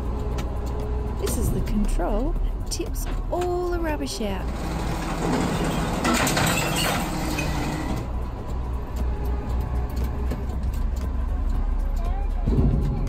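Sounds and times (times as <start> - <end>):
garbage truck engine and hydraulics: 0.0 - 13.0
rubbish crashing and clattering: 4.5 - 8.0.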